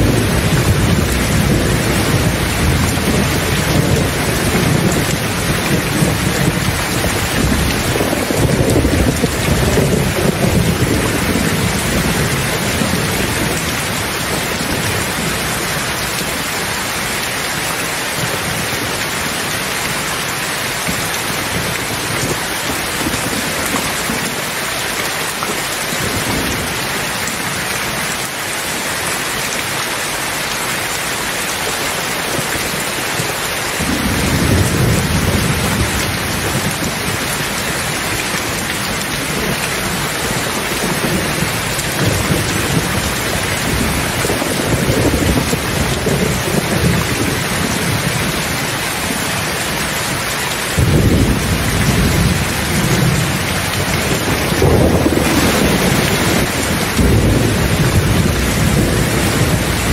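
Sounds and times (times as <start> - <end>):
rolling thunder: 0.0 - 15.7, 50.8 - 59.9
heavy rain: 0.0 - 59.9.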